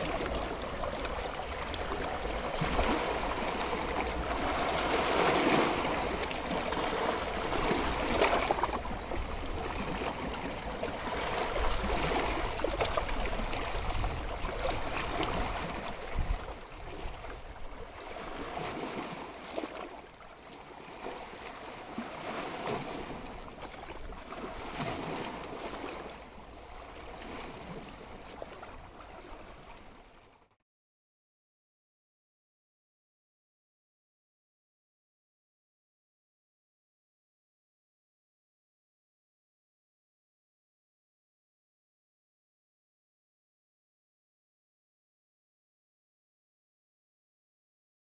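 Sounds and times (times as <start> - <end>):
ocean surf breaking: 0.0 - 14.1.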